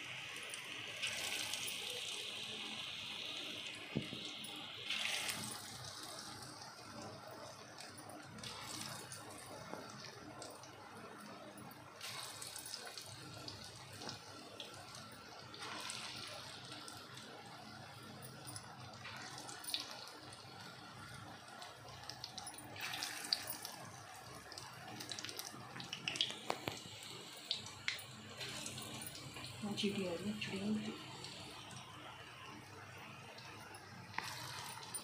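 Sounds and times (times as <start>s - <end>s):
batter sizzling in hot oil: 0.0s - 35.0s
oil crackling and popping: 0.2s - 11.1s, 19.0s - 29.6s, 31.0s - 35.0s.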